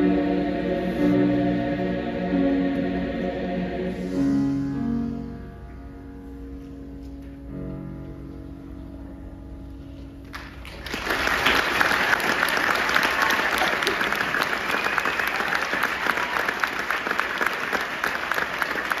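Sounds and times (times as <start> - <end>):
audience applause: 10.3 - 19.0.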